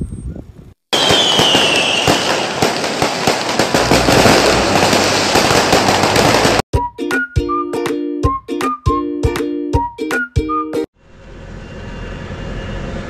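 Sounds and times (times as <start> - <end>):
fireworks crackling and banging: 0.9 - 6.6
firework whistle sliding down: 1.0 - 2.6.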